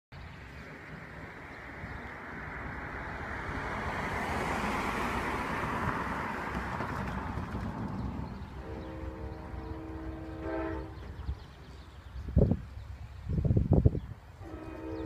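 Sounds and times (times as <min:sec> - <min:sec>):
car driving past: 0:02.3 - 0:08.6.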